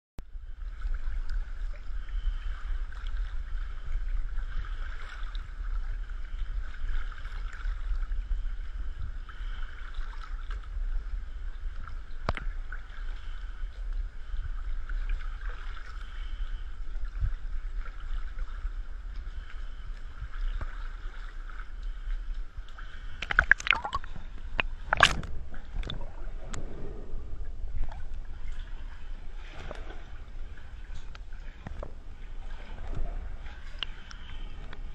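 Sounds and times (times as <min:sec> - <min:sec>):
water sloshing and gurgling: 0:00.2 - 0:34.9
steady low drone: 0:16.3 - 0:34.9
sharp loud splashes: 0:23.2 - 0:26.0.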